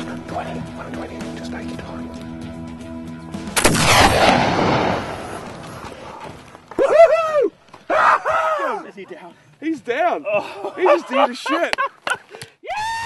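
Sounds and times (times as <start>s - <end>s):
gunshot with echo: 3.6s - 5.4s.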